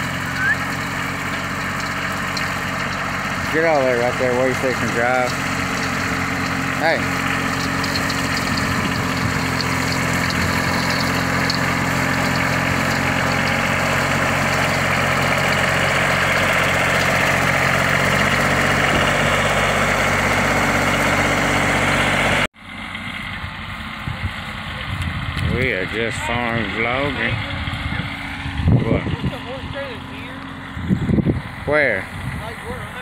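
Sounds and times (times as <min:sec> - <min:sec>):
tractor diesel engine under load: 0:00.0 - 0:33.0.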